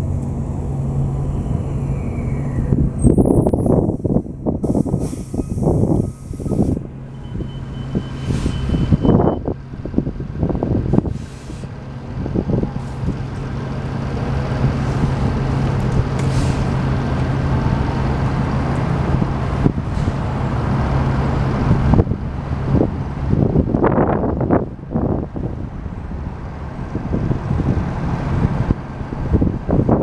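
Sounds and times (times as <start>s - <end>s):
bus diesel engine humming: 0.0s - 30.0s
air hiss: 4.6s - 6.8s.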